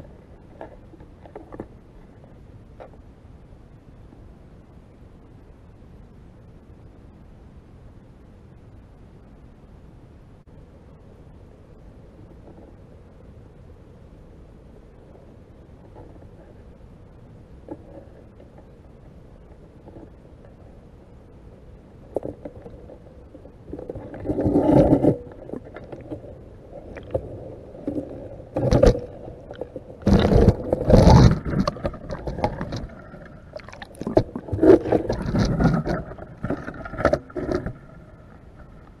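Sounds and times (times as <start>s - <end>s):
scraping: 23.7s - 38.9s
water rushing: 27.8s - 38.7s.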